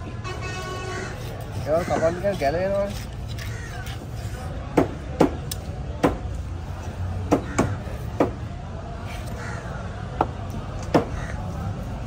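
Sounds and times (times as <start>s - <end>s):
knife chopping on wooden board: 1.2s - 6.3s, 7.2s - 8.4s.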